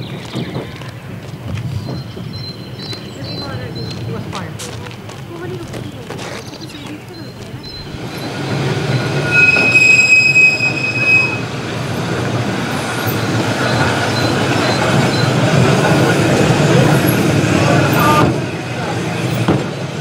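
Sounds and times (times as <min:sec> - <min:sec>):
tram wheels rumbling on track: 0:00.0 - 0:20.0
tram wheel squeal: 0:06.5 - 0:20.0.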